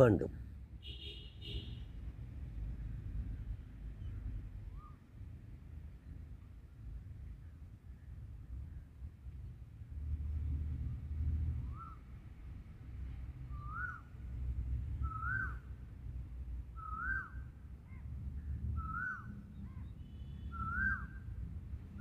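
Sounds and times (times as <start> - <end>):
bird whistled call: 11.7 - 12.0, 13.5 - 14.1, 15.0 - 15.6, 16.8 - 17.4, 18.8 - 21.2.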